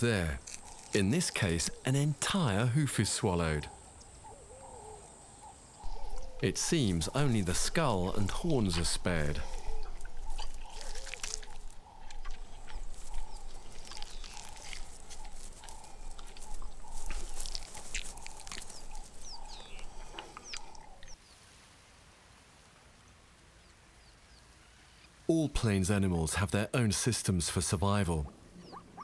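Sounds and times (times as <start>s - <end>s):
hyena crunching bone: 0.0s - 1.9s, 5.8s - 21.2s.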